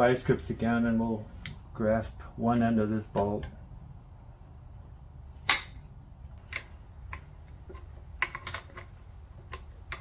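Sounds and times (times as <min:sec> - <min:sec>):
metal tool clicks: 0:06.4 - 0:10.0.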